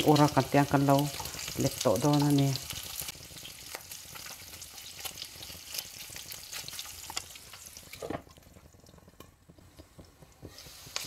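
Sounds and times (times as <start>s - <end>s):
meat sizzling in hot oil: 0.0s - 11.0s.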